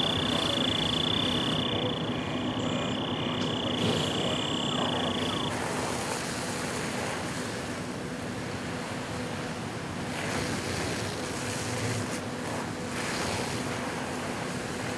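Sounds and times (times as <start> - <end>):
steady high tone: 0.0 - 5.6
faint low hum: 0.0 - 7.6.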